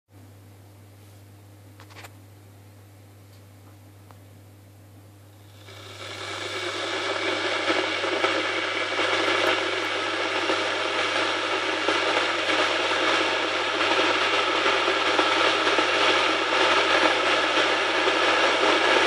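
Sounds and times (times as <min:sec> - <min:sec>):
electric kettle crackling hiss: 0:04.7 - 0:19.0.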